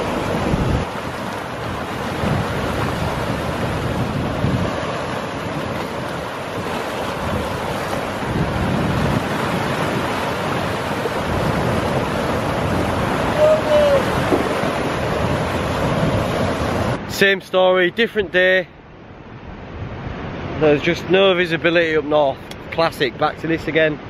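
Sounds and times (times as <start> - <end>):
wind buffeting the microphone: 0.0 - 17.0
surf breaking over rocks: 0.0 - 18.6.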